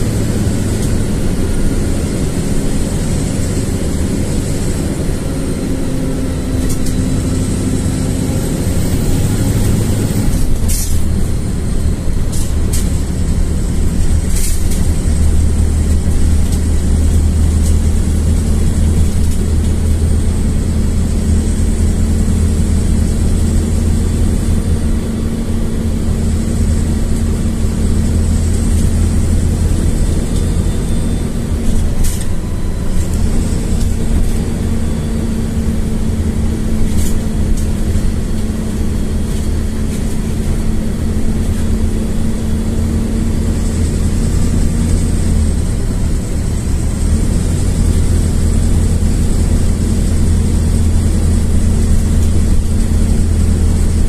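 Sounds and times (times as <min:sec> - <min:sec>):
bus engine drone: 0:00.0 - 0:54.0
road noise: 0:00.0 - 0:54.0.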